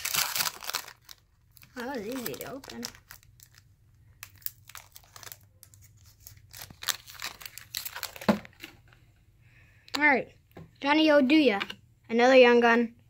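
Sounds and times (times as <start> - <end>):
foil wrapper crinkling: 0.0 - 8.4.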